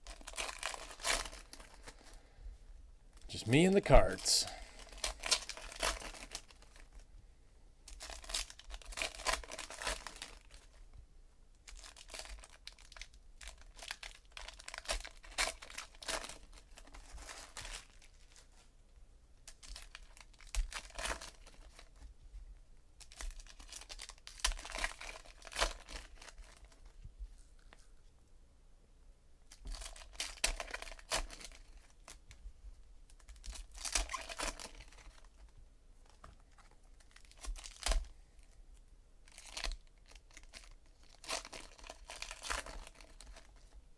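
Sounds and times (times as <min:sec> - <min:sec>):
foil wrappers tearing and crinkling: 0:00.1 - 0:02.0, 0:04.8 - 0:06.9, 0:07.9 - 0:10.6, 0:11.7 - 0:18.2, 0:23.0 - 0:26.8, 0:29.7 - 0:32.1, 0:33.2 - 0:35.3, 0:37.0 - 0:38.1, 0:39.3 - 0:43.6.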